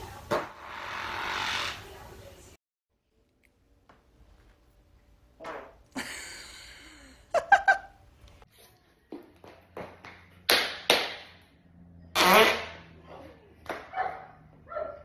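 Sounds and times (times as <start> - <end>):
person farting: 12.2 - 12.8.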